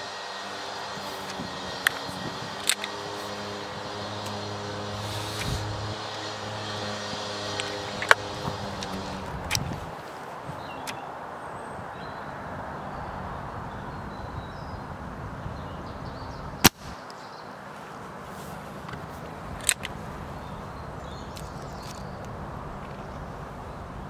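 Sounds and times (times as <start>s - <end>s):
air rifle shot: 16.6s - 17.0s.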